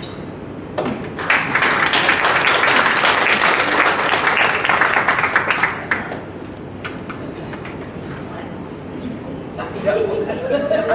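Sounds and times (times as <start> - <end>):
crowd applauding: 1.2 - 6.2.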